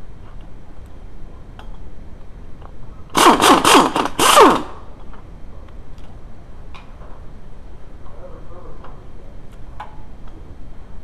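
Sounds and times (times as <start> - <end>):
pneumatic impact wrench bursts: 3.1 - 4.9.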